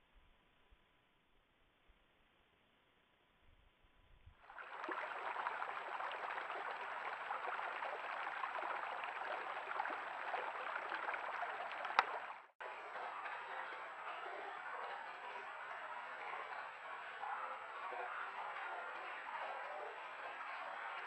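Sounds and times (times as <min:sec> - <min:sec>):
creek water flowing: 0:04.4 - 0:21.0.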